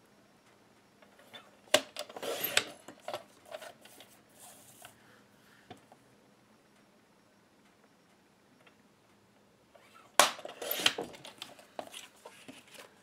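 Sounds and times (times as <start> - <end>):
paper sliding: 2.1 - 2.7
paper rustle: 10.6 - 13.0.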